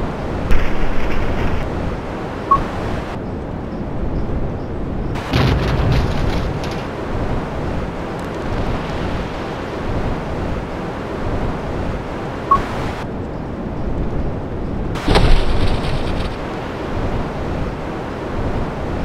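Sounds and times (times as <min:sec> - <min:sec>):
low rumbling noise: 0:04.8 - 0:12.1, 0:12.7 - 0:19.0.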